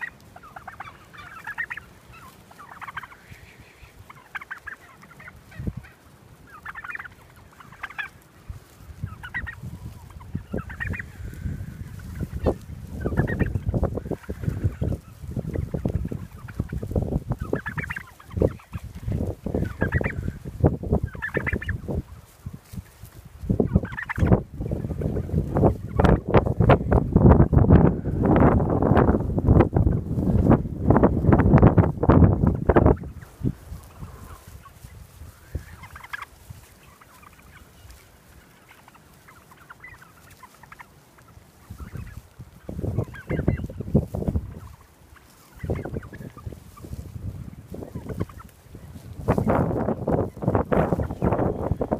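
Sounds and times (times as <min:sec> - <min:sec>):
rattling turkey gobbles: 0:00.0 - 0:51.9
turkeys calling: 0:00.0 - 0:51.9
wind rumbling on microphone: 0:08.4 - 0:36.7, 0:41.7 - 0:44.8, 0:45.6 - 0:51.9.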